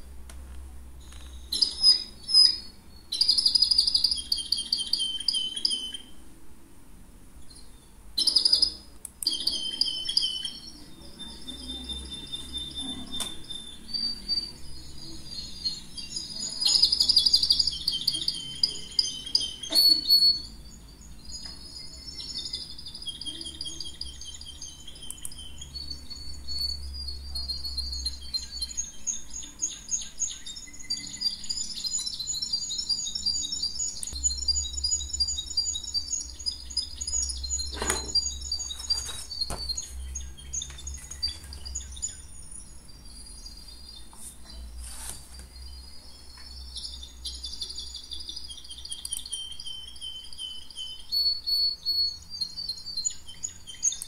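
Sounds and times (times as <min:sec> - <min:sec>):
small birds chirping: 0:00.0 - 0:06.4, 0:07.3 - 0:54.0
sharp clicks: 0:48.9 - 0:49.4.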